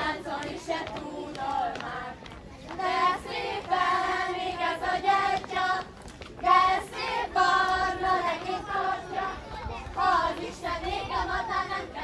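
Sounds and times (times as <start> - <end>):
children singing together: 0.0 - 2.1, 6.4 - 12.0.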